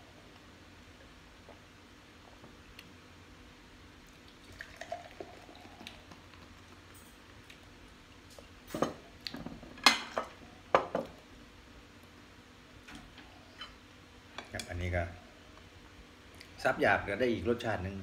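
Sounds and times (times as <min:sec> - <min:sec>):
beer pouring into glass: 0:04.2 - 0:06.6.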